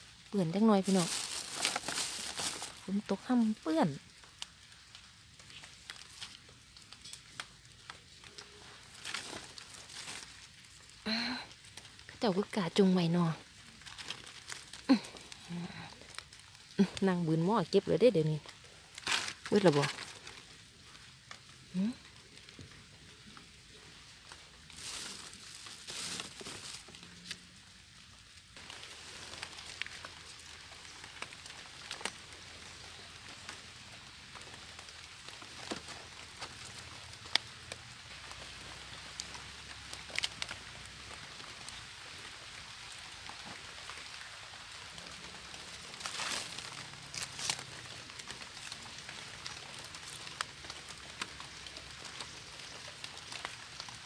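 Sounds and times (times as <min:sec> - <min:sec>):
leaves rustling: 0:00.0 - 0:54.0
rain pattering on leaves: 0:00.0 - 0:54.0.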